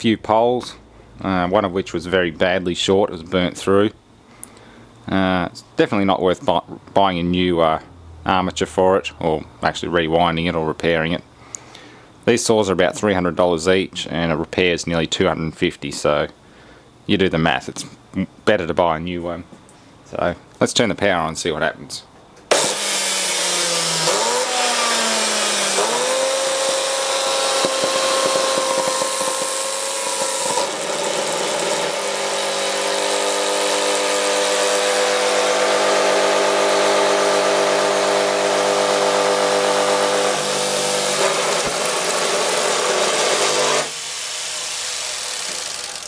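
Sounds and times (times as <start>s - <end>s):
electric motor whining: 22.5s - 46.0s.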